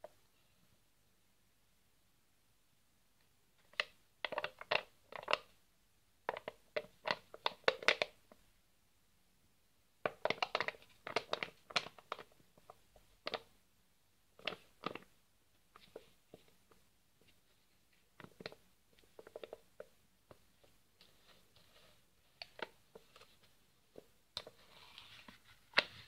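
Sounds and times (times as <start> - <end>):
plastic tub crackling and clicking: 3.6 - 5.5, 6.3 - 8.4, 10.1 - 13.5, 14.4 - 15.1, 18.1 - 21.1, 22.4 - 24.6.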